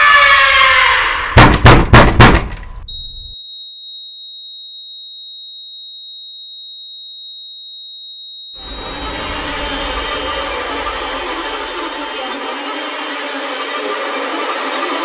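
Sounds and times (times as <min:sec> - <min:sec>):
loud bangs: 0:01.3 - 0:02.7.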